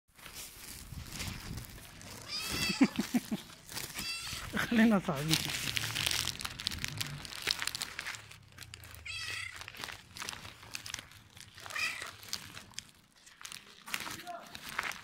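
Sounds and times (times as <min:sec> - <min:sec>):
footsteps crunching on gravel: 0:00.1 - 0:15.0
cat meowing: 0:02.2 - 0:03.0, 0:03.9 - 0:04.5, 0:09.0 - 0:09.7, 0:11.6 - 0:12.2.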